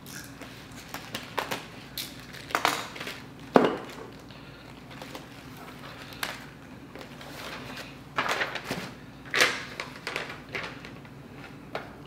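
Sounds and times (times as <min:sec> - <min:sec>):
cardboard and paper rustling: 0:04.8 - 0:11.6.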